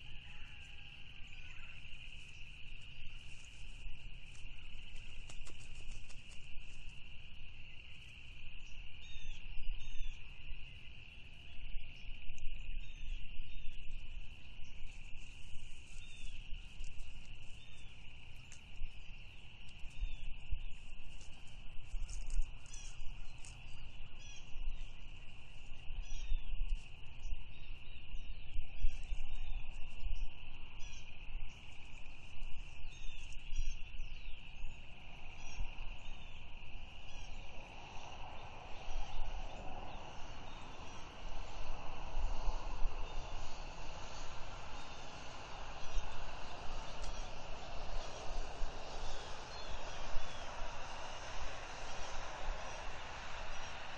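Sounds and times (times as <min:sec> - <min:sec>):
insect trill: 0:00.0 - 0:53.9
wind on microphone: 0:11.7 - 0:53.9.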